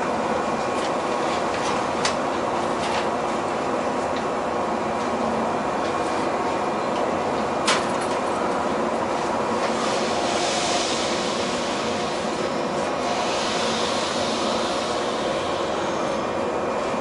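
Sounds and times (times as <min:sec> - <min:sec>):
electric train running noise: 0:00.0 - 0:17.0
hiss: 0:09.7 - 0:16.0.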